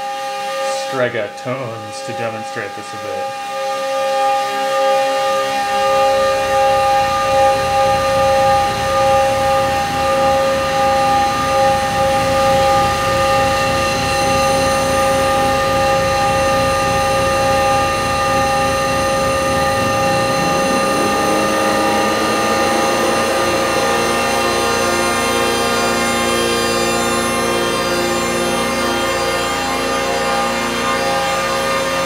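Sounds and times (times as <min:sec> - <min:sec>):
rising synth sweep: 0:04.2 - 0:32.0
steady synth tones: 0:04.5 - 0:32.0
fluttering low rumble: 0:16.2 - 0:28.7.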